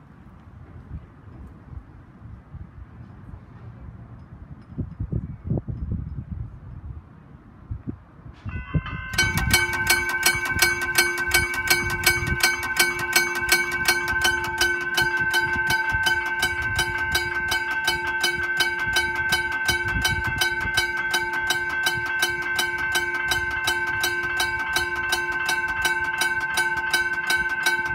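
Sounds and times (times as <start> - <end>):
level crossing bell ringing: 8.5 - 27.9.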